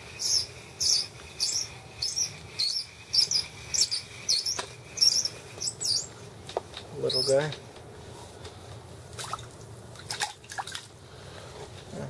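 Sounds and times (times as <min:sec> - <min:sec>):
fishing reel squeaking: 0:00.1 - 0:06.1.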